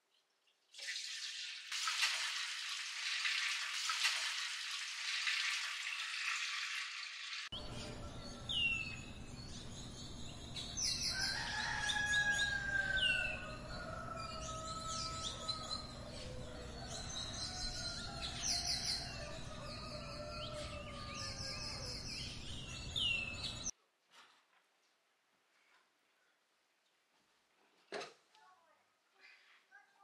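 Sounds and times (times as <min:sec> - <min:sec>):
milk pouring into metal pot: 0:00.8 - 0:07.5
birds chirping: 0:07.5 - 0:23.7.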